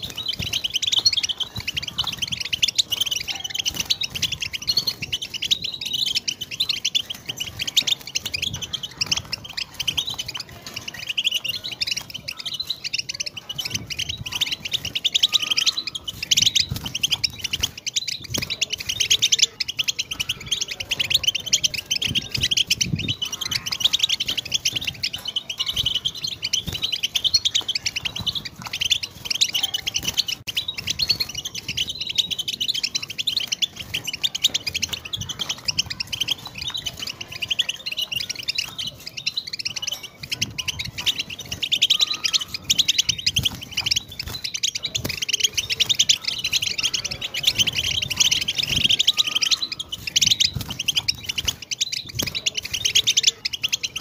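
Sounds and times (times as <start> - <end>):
goldfinch twittering song: 0.0 - 54.0.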